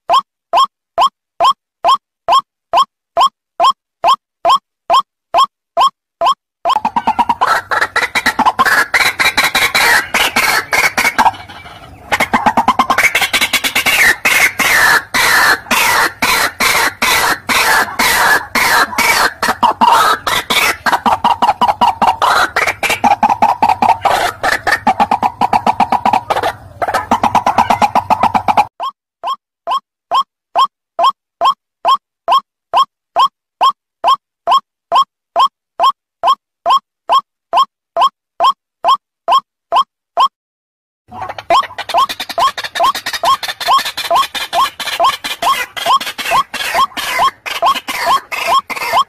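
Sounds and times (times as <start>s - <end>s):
bird croaking call: 6.7s - 28.7s, 41.3s - 49.0s.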